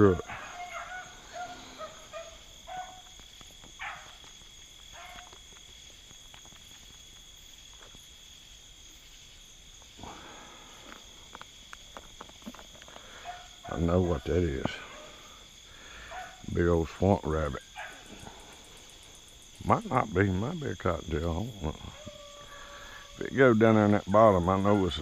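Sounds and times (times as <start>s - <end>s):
faint beagles baying: 0.0s - 4.2s, 4.9s - 5.4s, 13.0s - 16.6s, 17.4s - 18.7s, 21.6s - 25.0s
crickets trilling: 0.0s - 25.0s.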